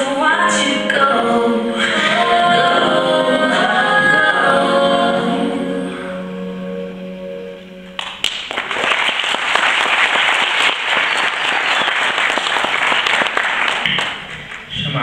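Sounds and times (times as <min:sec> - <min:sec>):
audience applause: 0:08.0 - 0:14.7.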